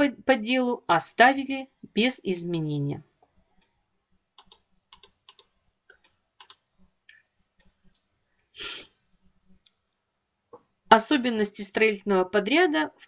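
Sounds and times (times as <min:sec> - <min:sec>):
computer keys clicking: 0:04.4 - 0:06.7
short hiss of breath: 0:08.6 - 0:09.0.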